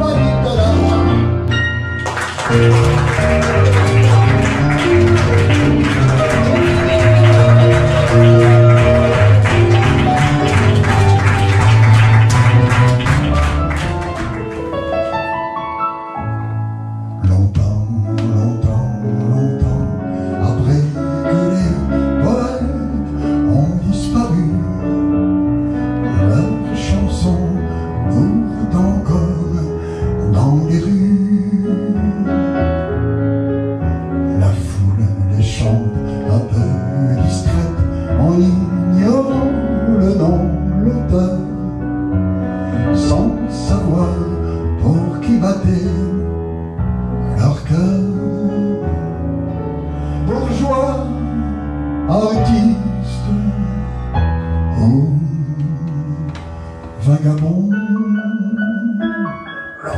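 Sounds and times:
man singing into a microphone: 0:00.0 - 0:01.4, 0:17.2 - 0:33.0, 0:34.2 - 0:46.4, 0:47.3 - 0:49.3, 0:50.0 - 0:59.9
piano accompaniment: 0:00.0 - 0:59.9.

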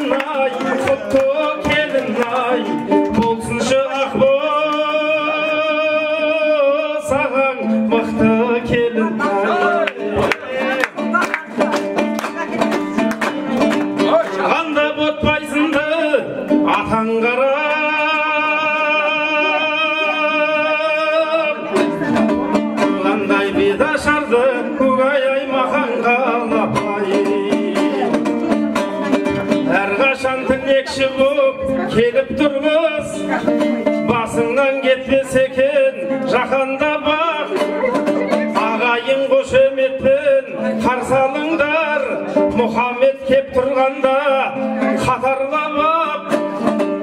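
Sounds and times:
dombra strumming: 0:00.0 - 0:47.0
man singing: 0:00.0 - 0:47.0.

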